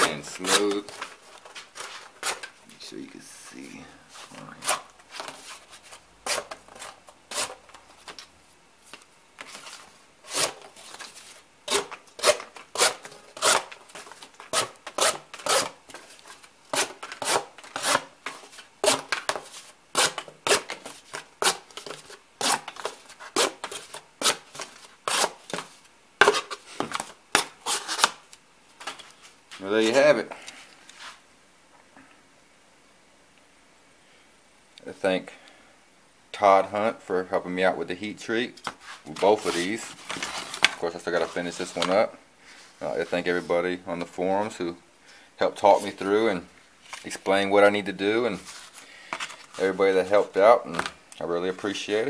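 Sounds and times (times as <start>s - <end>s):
knife slicing paper and cardboard: 0.0s - 1.0s, 10.3s - 11.1s, 11.7s - 15.8s, 16.7s - 28.2s.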